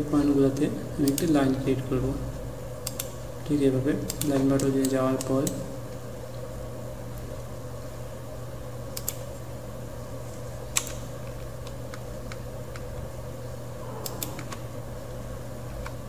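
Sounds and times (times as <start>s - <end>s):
low hum and hiss: 0.0s - 16.0s
computer mouse clicks: 1.0s - 1.4s, 2.8s - 3.2s, 4.1s - 5.6s, 8.9s - 9.3s, 13.9s - 14.7s.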